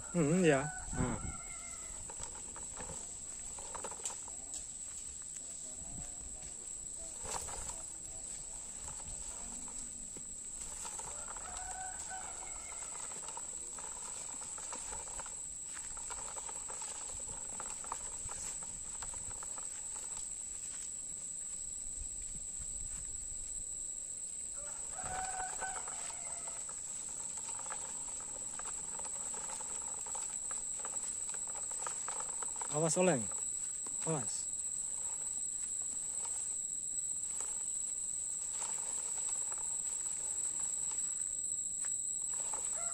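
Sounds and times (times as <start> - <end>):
rooster crowing: 0.0 - 3.0, 10.6 - 15.2, 24.5 - 30.3, 42.3 - 42.9
high-pitched insect buzz: 0.0 - 42.9.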